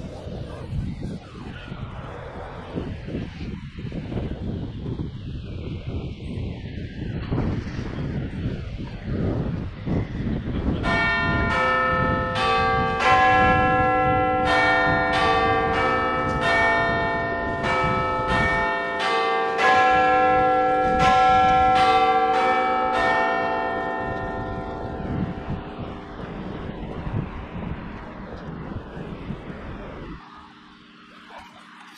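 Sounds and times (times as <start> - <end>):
bells ringing: 10.8 - 26.0.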